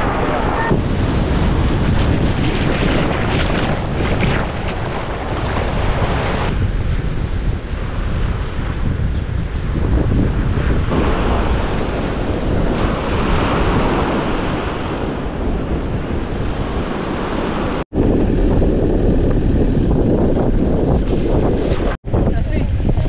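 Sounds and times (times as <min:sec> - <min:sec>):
wind buffeting microphone: 0:00.0 - 0:23.0
waves breaking on beach: 0:10.3 - 0:17.8.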